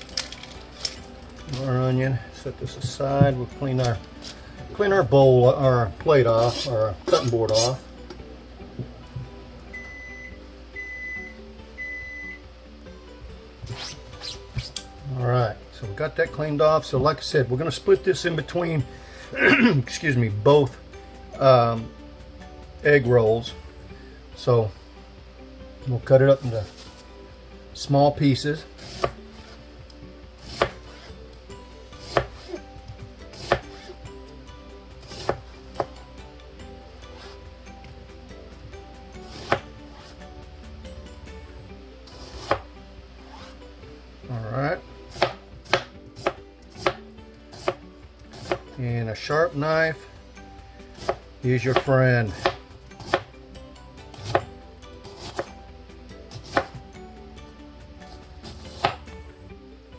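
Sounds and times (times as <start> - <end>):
knife slicing onion on board: 28.8 - 29.6, 30.4 - 31.2, 32.0 - 32.6, 33.3 - 34.0, 35.0 - 36.0, 39.2 - 40.2, 42.1 - 42.7, 43.3 - 43.6, 45.1 - 48.7, 51.0 - 53.3, 54.2 - 55.6, 56.3 - 56.8, 58.1 - 59.1.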